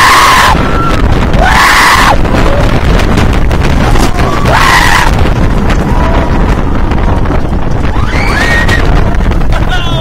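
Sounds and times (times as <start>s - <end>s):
riders screaming: 0.0s - 2.7s, 3.9s - 6.4s, 7.9s - 9.1s
roller coaster rumbling on track: 0.0s - 10.0s
wind rushing on microphone: 0.0s - 10.0s.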